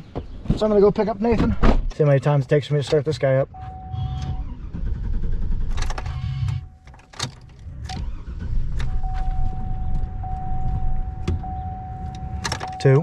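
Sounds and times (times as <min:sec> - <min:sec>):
truck starter cranking: 0:03.6 - 0:11.3
truck engine running: 0:03.6 - 0:12.8.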